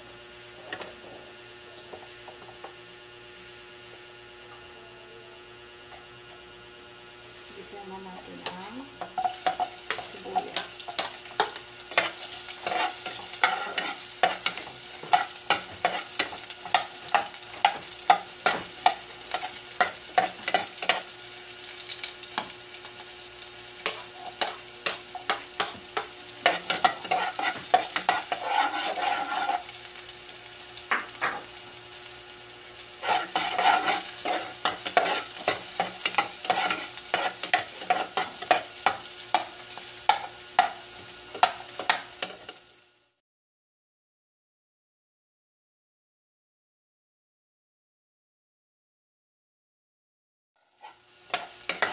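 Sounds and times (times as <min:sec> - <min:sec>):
onion sizzling in hot oil: 0:08.4 - 0:43.2, 0:50.6 - 0:51.9
spoon stirring in pot: 0:09.2 - 0:21.1, 0:23.8 - 0:29.7, 0:33.0 - 0:39.5.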